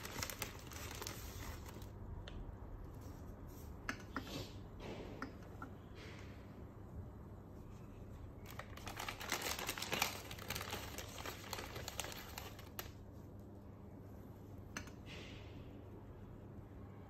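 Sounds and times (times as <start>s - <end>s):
dry spaghetti crinkling and clicking: 0.0s - 1.9s, 8.4s - 13.1s
hand rustling pasta strands: 0.0s - 1.9s.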